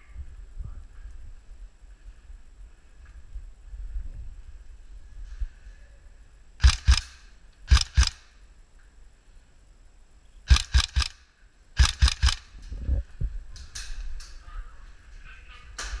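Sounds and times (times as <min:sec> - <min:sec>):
airsoft gun firing shots: 0:06.6 - 0:08.4, 0:10.5 - 0:12.6.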